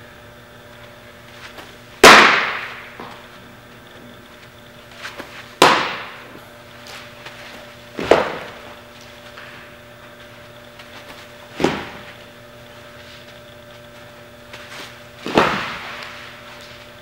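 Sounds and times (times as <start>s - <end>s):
steady low hum: 0.0s - 17.0s
baseball popping into mitt: 8.0s - 8.6s.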